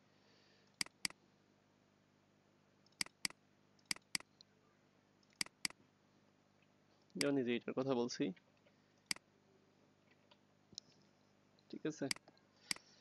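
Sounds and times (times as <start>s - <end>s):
mouse button double-clicks: 2.9s - 4.3s, 5.4s - 5.8s.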